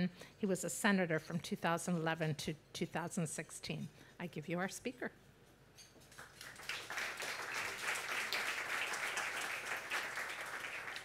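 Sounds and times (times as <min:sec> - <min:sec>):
audience applauding: 0:06.2 - 0:11.0.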